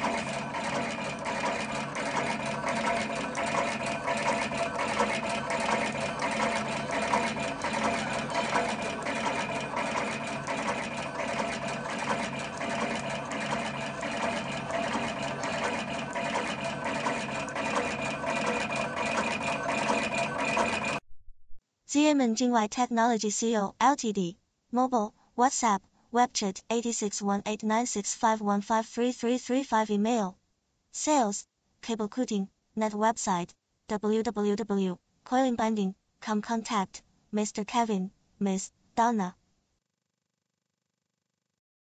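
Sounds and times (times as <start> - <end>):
machine motor whine: 0.0 - 21.0
regular machine clicks: 0.0 - 21.0.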